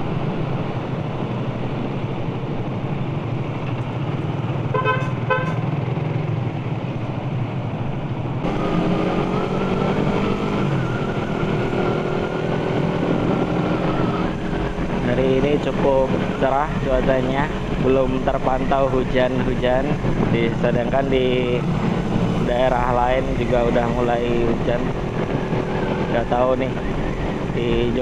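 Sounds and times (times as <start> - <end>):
wind and road noise: 0.0 - 28.0
motorcycle engine running: 1.0 - 28.0
horn toots: 4.7 - 5.6.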